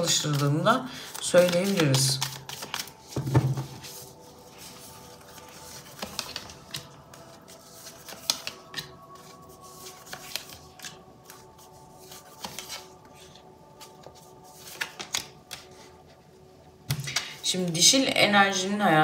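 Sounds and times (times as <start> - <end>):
faint background music: 0.0 - 19.0
cards slapping on wooden table: 16.9 - 17.3.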